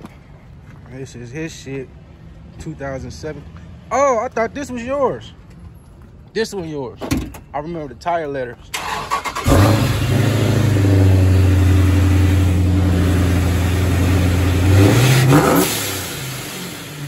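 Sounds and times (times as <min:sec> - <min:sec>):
car engine revving and idling: 0:09.0 - 0:17.0.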